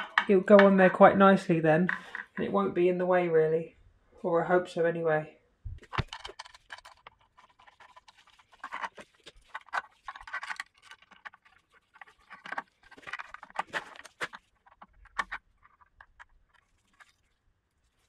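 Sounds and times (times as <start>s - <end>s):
metal clicks taps and scrapes: 5.8s - 17.2s.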